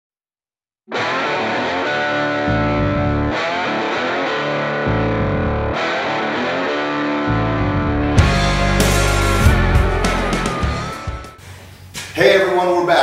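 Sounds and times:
distorted electric guitar chords: 0:00.9 - 0:11.5
heavy low bass notes: 0:02.5 - 0:03.3, 0:04.8 - 0:05.8, 0:07.2 - 0:11.4.

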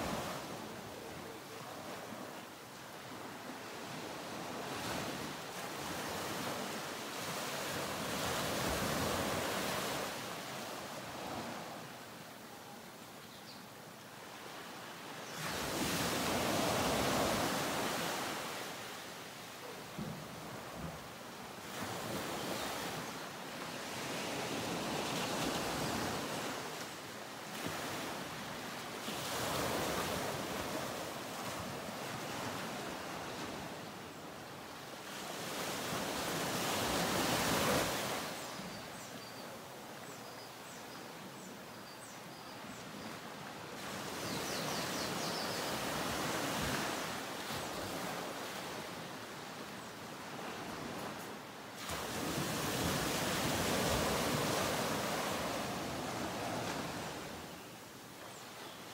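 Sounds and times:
ocean waves breaking: 0:50.2 - 0:57.5.

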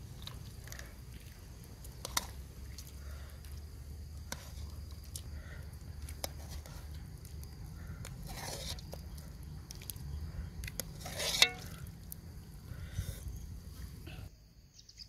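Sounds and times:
insect trill: 0:00.0 - 0:15.0
spoon scraping pot: 0:08.2 - 0:09.0, 0:10.9 - 0:11.8
metal spoon clinking in pot: 0:11.2 - 0:11.8.

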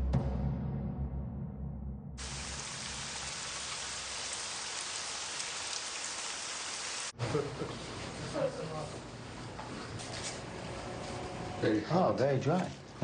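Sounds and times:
steady rain falling: 0:02.2 - 0:07.1.

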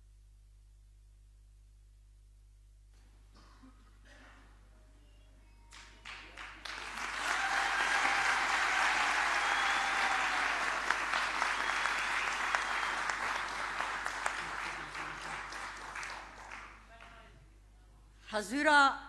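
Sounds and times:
audience applause: 0:06.0 - 0:17.1.

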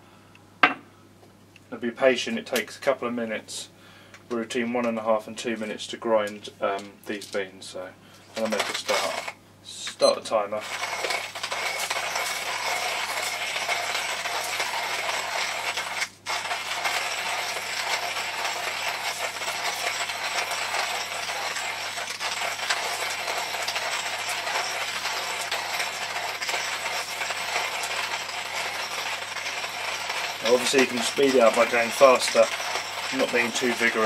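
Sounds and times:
hand coffee grinder crunching beans: 0:08.4 - 0:09.4, 0:10.6 - 0:34.0.

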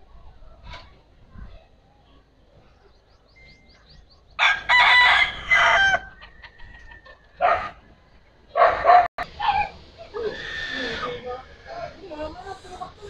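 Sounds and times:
roosters crowing: 0:04.4 - 0:13.0.

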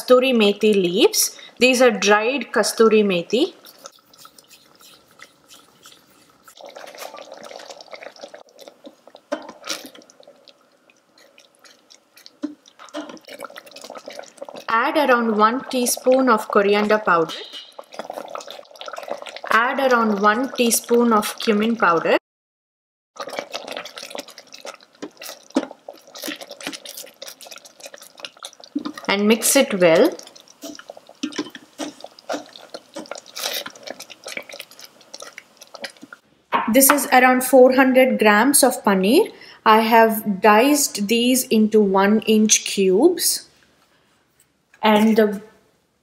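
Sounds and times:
thick sauce bubbling: 0:02.8 - 0:22.2, 0:23.2 - 0:37.3.

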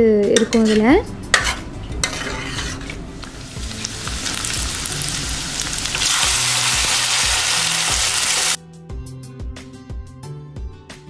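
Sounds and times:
stirring in steel pot: 0:00.4 - 0:03.4
oil sizzling: 0:02.0 - 0:08.6.

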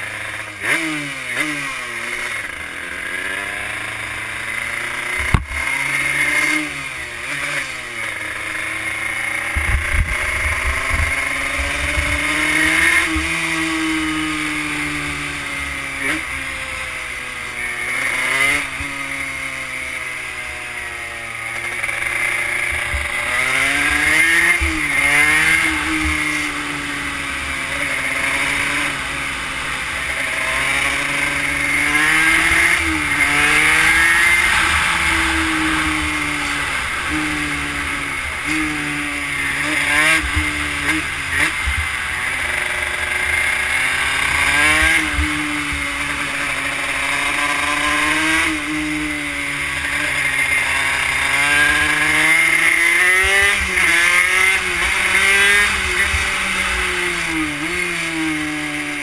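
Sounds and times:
two-stroke bike engine revving: 0:00.0 - 0:59.0
wind rumbling on microphone: 0:09.6 - 0:12.2.

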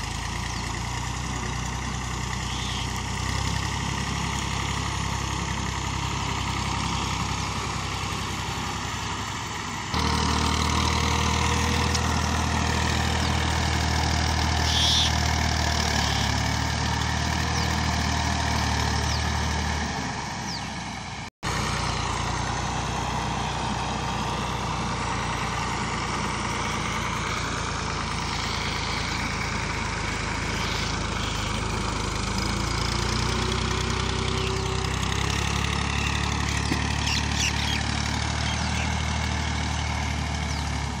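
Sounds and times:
tractor diesel engine running: 0:00.0 - 0:41.0
blade dragging through soil: 0:14.6 - 0:15.1, 0:27.4 - 0:36.9.

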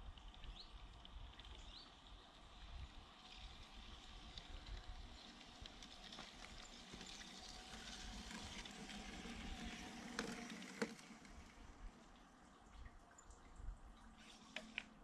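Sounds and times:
model train motor humming: 0:02.6 - 0:11.9
wheels rattling over track: 0:03.1 - 0:12.0.

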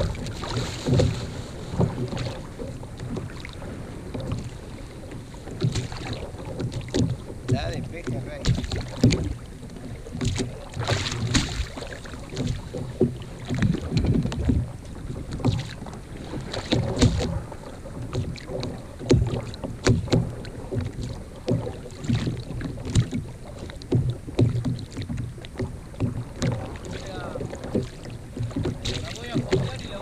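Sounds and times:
wind on microphone: 0:00.0 - 0:23.3
water knocking against plastic hull: 0:00.0 - 0:30.0.

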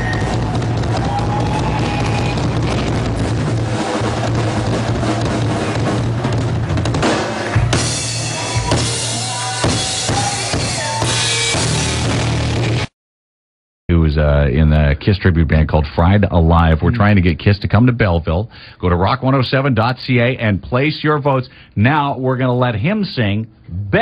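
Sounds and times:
bass drum and snare: 0:00.0 - 0:12.9
live rock band music: 0:00.0 - 0:12.9.

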